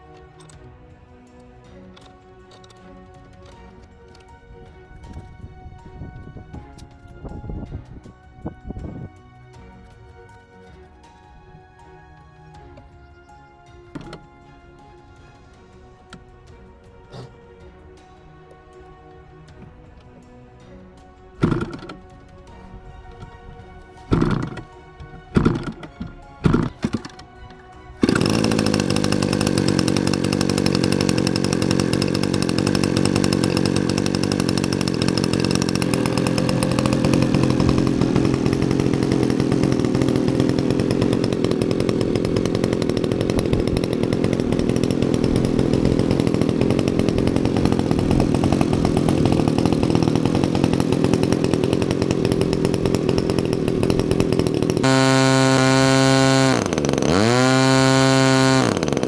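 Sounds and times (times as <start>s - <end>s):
model airplane engine running: 21.4s - 22.0s, 24.1s - 27.3s, 28.0s - 59.0s.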